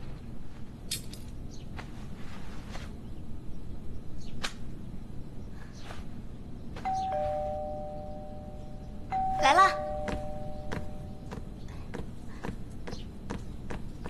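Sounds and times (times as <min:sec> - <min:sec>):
two-note doorbell chime: 0:06.8 - 0:11.4.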